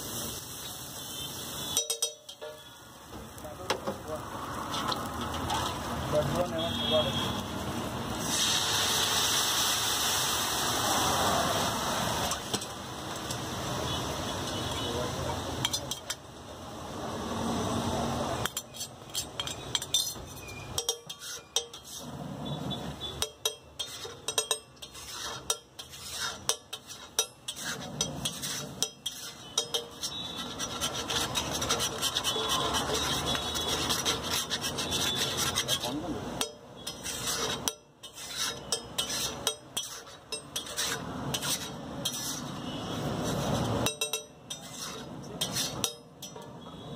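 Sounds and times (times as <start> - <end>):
gravy sizzling on a griddle: 0.0 - 46.4
metal spatula scraping griddle: 4.6 - 7.0, 15.6 - 16.2, 18.4 - 46.9.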